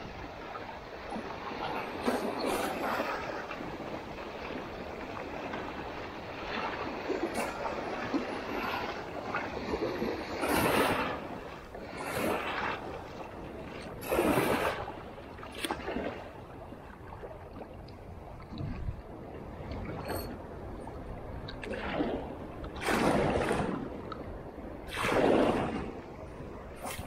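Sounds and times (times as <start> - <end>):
waves washing against rocks: 0.0 - 16.4, 21.3 - 24.1, 24.7 - 27.0.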